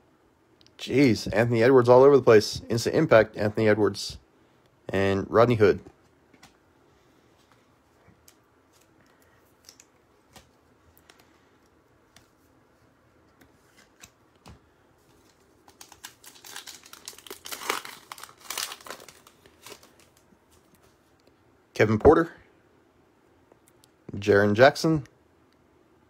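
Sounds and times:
foil wrapper crinkling and tearing: 15.1 - 20.3.

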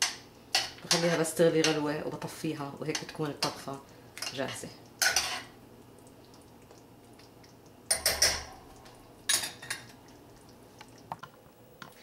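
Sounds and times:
metal spoon scraping a saucepan: 5.0 - 5.5.

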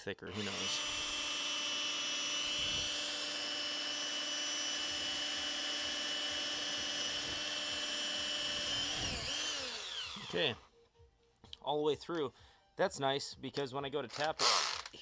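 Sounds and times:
cordless drill drilling through metal: 0.3 - 10.6, 14.1 - 15.0.

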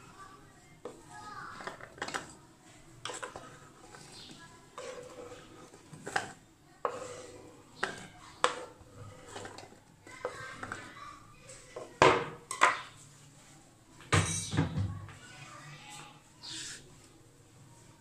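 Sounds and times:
knife scraping cutting board: 4.8 - 9.6.

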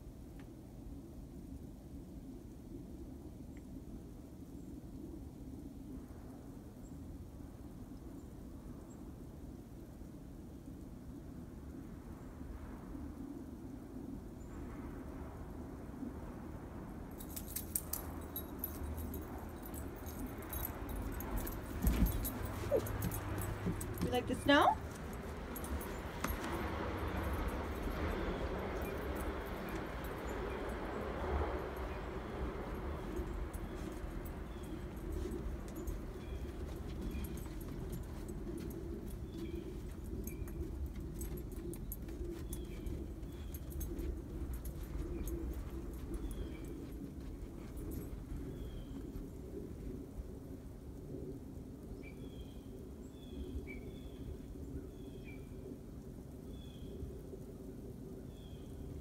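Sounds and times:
steady low rumble: 17.9 - 59.0
paws crunching in snow: 20.0 - 28.1, 32.6 - 49.4.

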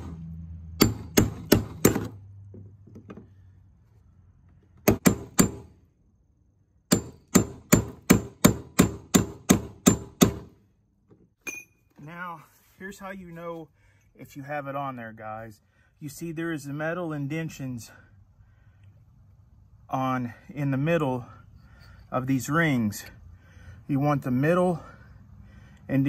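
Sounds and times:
hammer striking chisel on metal: 0.8 - 2.1, 4.8 - 5.7, 6.9 - 10.5.

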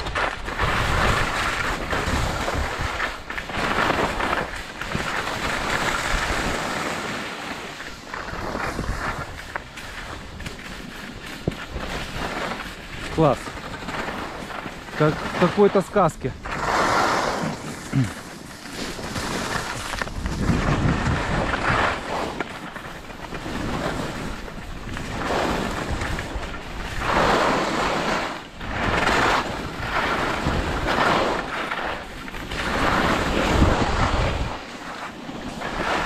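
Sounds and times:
wind buffeting microphone: 0.0 - 3.3, 7.8 - 15.3, 18.7 - 34.8
snowboard edge scraping snow: 0.0 - 36.0.

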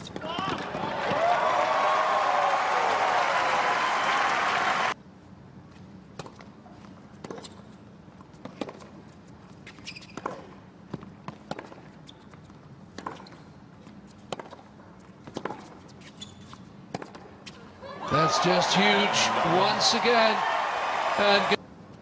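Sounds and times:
crowd applause: 0.7 - 5.0, 18.0 - 21.6
tennis racket strikes and bounces: 12.9 - 13.4, 14.2 - 15.8.

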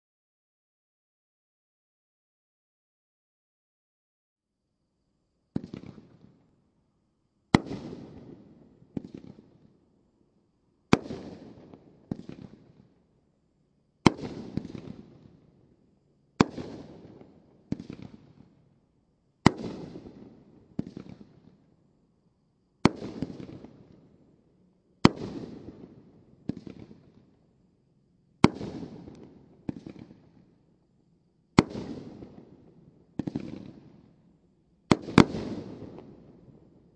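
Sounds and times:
firework bangs with crackle: 5.6 - 6.3, 7.6 - 9.6, 10.9 - 12.8, 14.1 - 15.4, 16.4 - 18.5, 19.4 - 21.6, 22.8 - 24.0, 25.0 - 27.3, 28.4 - 30.5, 31.6 - 34.1, 34.9 - 36.4.

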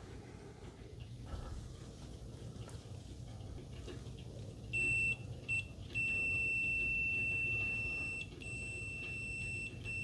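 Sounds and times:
multimeter continuity beep: 4.7 - 10.0.

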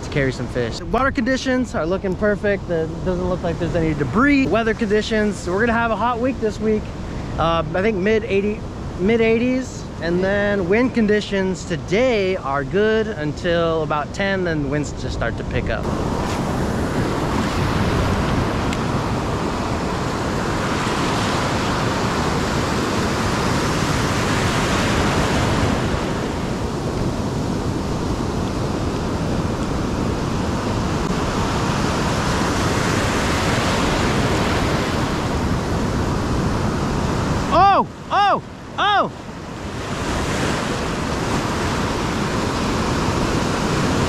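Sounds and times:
ocean surf breaking: 0.0 - 44.0.

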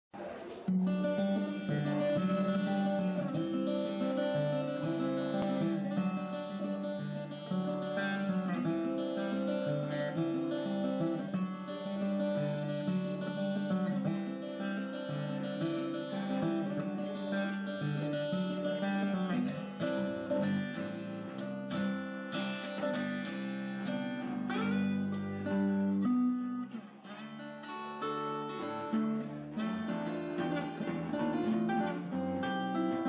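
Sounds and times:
acoustic bass guitar: 0.2 - 33.0
acoustic guitar: 0.2 - 33.0.

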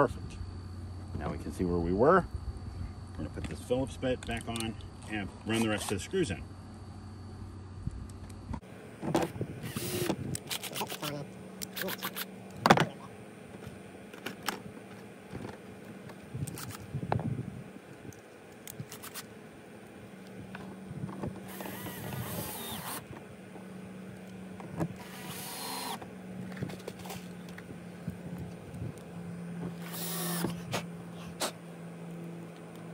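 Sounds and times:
drill chuck whirring: 9.6 - 11.1, 21.4 - 23.1, 24.9 - 26.1, 29.8 - 30.7.

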